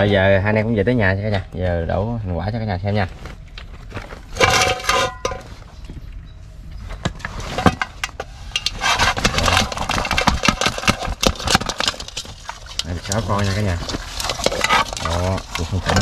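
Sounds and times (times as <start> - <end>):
crab shells clicking and clattering: 7.6 - 16.0.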